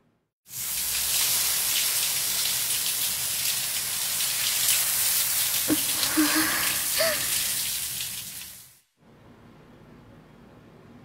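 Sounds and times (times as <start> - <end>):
shower water spraying: 0.5 - 8.8.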